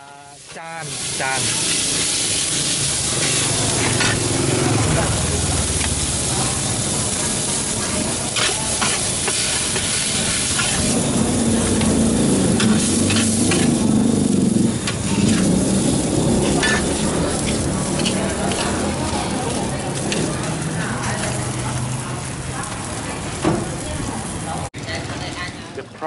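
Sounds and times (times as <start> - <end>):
noodles sizzling in frying pan: 0.0 - 25.3
metal spatula scraping pan: 3.1 - 4.2, 8.4 - 11.0, 12.6 - 14.0, 14.8 - 19.0
low rumble: 10.8 - 20.8.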